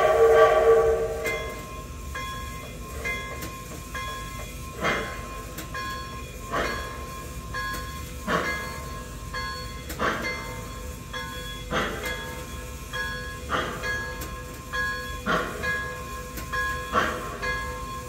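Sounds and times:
steam chuff: 0.0 - 1.9, 2.8 - 9.1, 9.8 - 18.0
locomotive bell ringing: 0.0 - 18.0.

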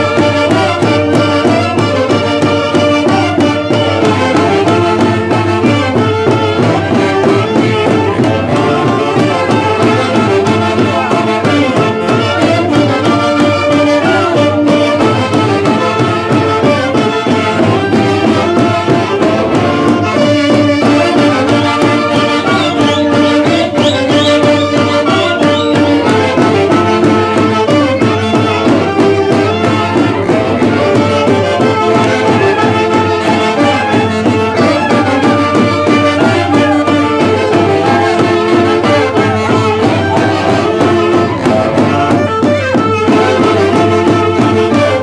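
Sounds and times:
saxophones and brass melody: 0.0 - 45.0
steady drum beat: 0.0 - 45.0.

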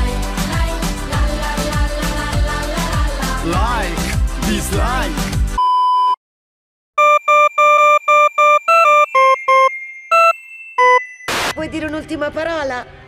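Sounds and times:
pop music with singing: 0.0 - 5.6
electronic test-tone beep: 5.6 - 6.2, 7.0 - 11.7
short electronic beeps: 5.6 - 6.2, 7.0 - 11.7.

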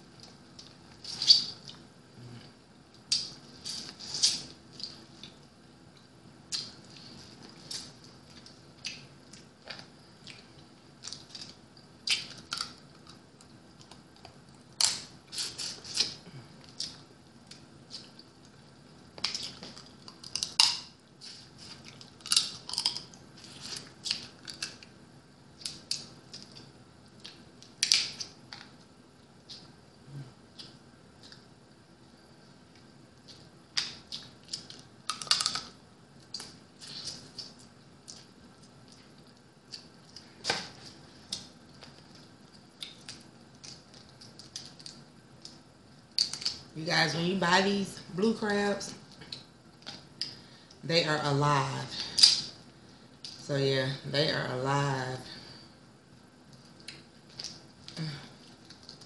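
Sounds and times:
crab shells cracking: 22.0 - 23.2, 33.8 - 35.7.

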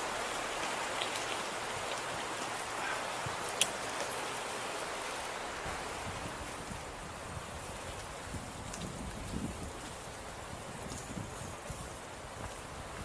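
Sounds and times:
bicycle tyres rolling on asphalt: 0.0 - 13.0
wind on microphone: 5.4 - 13.0.

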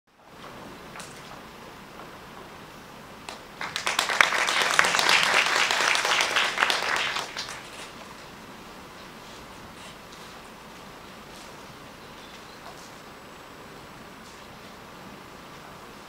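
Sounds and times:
audience applause: 3.3 - 8.0.

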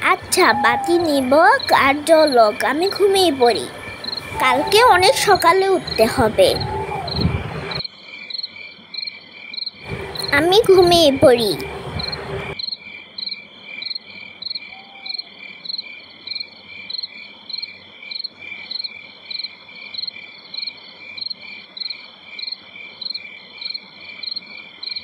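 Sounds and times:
crickets chirping: 0.0 - 11.3, 12.0 - 25.0.

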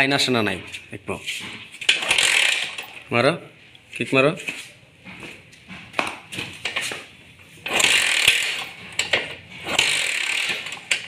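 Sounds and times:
moped kick start ratcheting: 1.8 - 3.1, 7.6 - 11.0.

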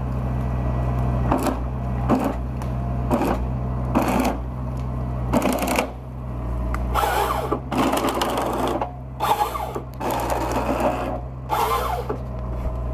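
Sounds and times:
tractor engine running: 0.0 - 12.9.

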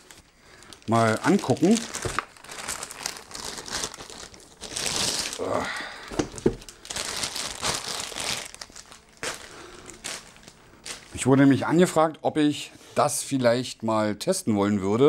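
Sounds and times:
plastic bag crinkling: 0.0 - 11.3.

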